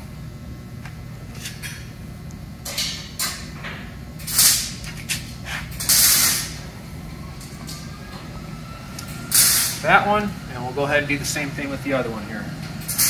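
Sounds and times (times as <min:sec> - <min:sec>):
steady low hum: 0:00.0 - 0:13.0
air hose rustling and hissing: 0:04.3 - 0:06.6, 0:09.3 - 0:10.0.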